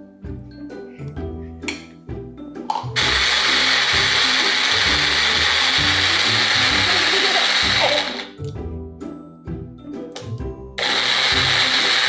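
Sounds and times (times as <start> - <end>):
electric blender running: 3.0 - 8.4, 10.8 - 12.0.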